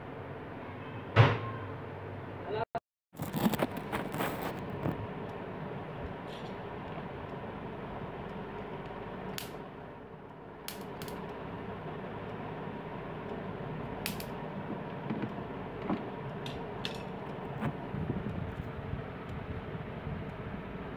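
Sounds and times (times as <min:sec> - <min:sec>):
steady background hum: 0:03.2 - 0:20.9
electric mosquito bat clicks: 0:10.7 - 0:11.4, 0:14.0 - 0:14.4.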